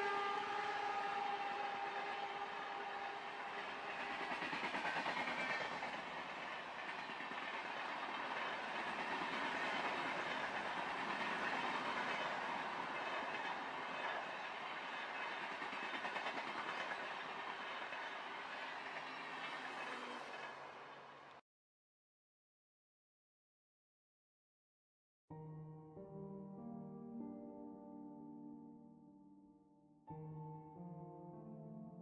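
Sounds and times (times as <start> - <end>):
train wheels rushing on rails: 0.1 - 21.4
clickety-clack over rail joints: 3.4 - 21.4.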